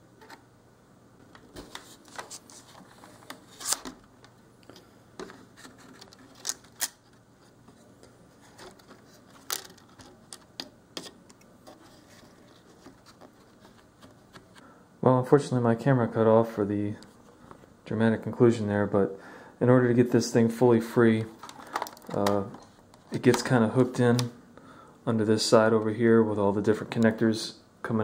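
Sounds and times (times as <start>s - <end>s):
plastic parts clicking: 4.6s - 7.2s, 8.6s - 11.4s, 21.4s - 23.5s.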